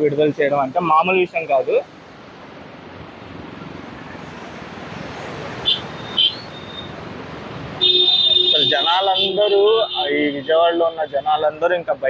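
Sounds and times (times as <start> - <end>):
motorbikes passing: 0.0 - 12.0
road traffic noise: 0.0 - 12.0.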